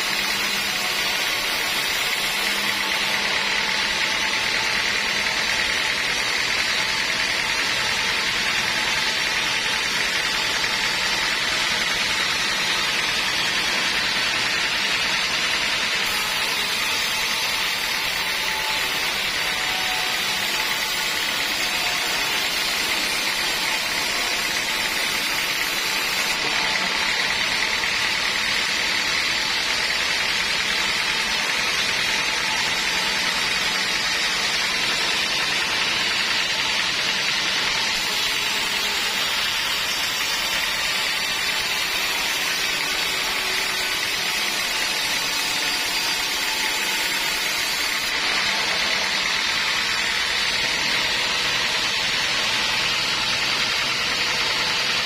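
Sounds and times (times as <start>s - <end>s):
band saw cutting log: 0.0s - 55.0s.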